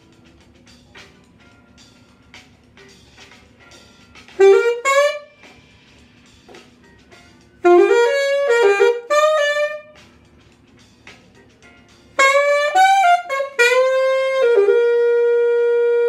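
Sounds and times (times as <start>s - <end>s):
saxophone playing jazz: 4.3s - 5.6s, 7.6s - 10.1s, 12.1s - 16.0s.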